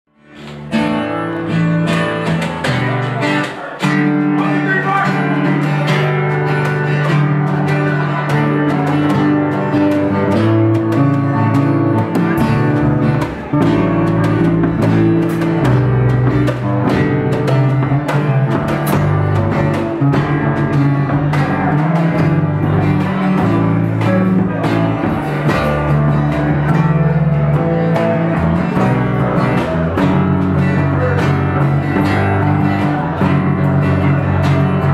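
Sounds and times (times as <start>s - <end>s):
strummed acoustic guitars: 0.1s - 34.9s
low bass notes: 0.2s - 34.9s
drum kit: 0.3s - 34.9s.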